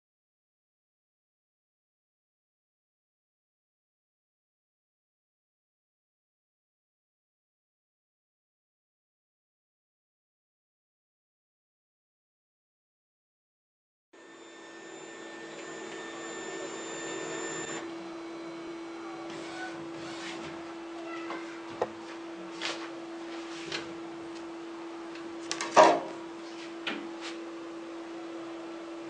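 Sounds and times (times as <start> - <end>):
printer motor whine: 14.2 - 25.6
printer hum: 14.2 - 29.0.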